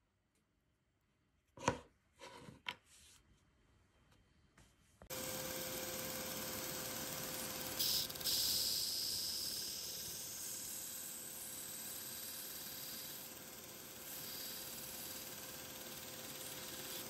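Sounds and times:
bench power tool humming: 5.1 - 17.0.

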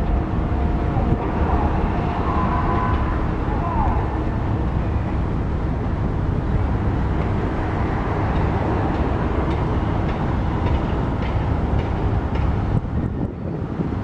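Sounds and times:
diesel railcar engine rumbling: 0.0 - 14.0.

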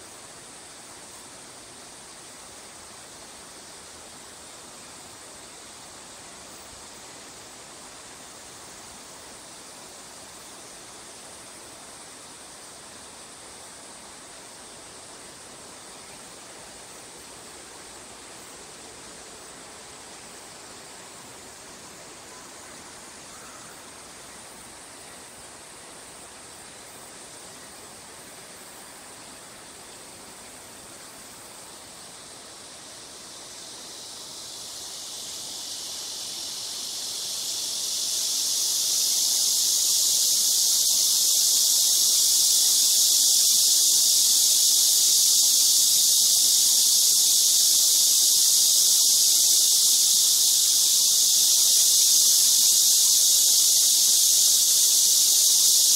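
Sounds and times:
cicadas buzzing: 0.0 - 55.9
faint outdoor background noise: 0.0 - 55.9.

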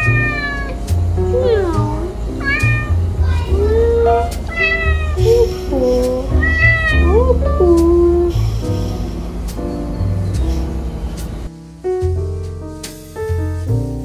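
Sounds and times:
cat meowing: 0.0 - 8.2
background music with steady beat: 0.0 - 14.0.

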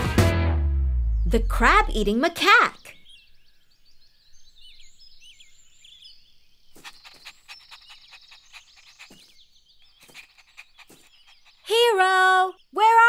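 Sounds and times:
small birds chirping: 1.1 - 13.0
cartoon puppy panting: 6.8 - 12.1.

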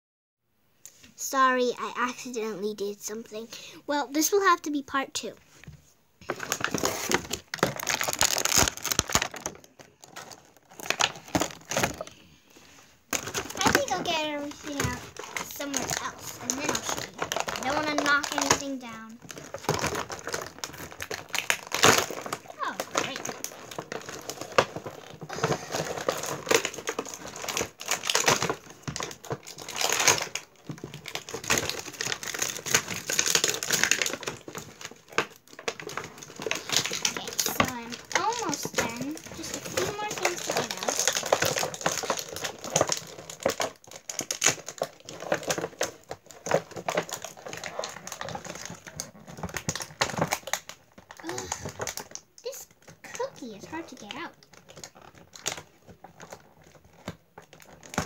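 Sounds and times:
plastic packaging crinkling: 6.2 - 58.0
toys clicking and rattling: 13.1 - 58.0.

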